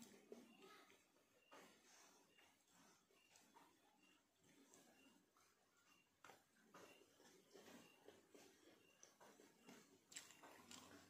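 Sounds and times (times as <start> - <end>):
fingers mixing rice on plastic plate: 7.1 - 11.0.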